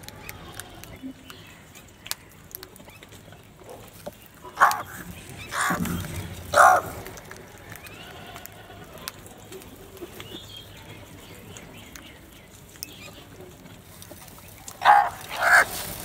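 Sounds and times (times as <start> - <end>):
birds pecking at bowl: 0.0 - 16.0
crows cawing: 5.5 - 6.0, 14.8 - 15.8.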